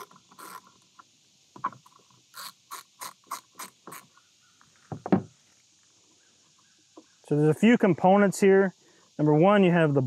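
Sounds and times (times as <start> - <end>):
ratchet wrench clicking: 0.0 - 0.7, 2.3 - 4.1.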